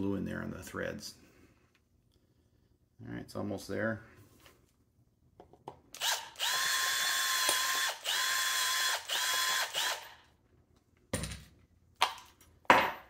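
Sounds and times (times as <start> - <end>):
cordless drill whining: 6.0 - 10.3.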